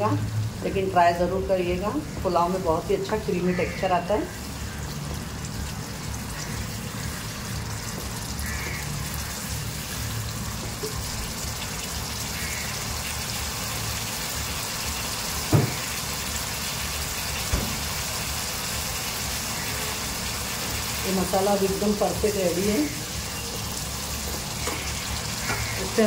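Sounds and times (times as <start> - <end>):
masala sizzling in a frying pan: 0.0 - 26.0
sharp knocks: 15.5 - 15.8.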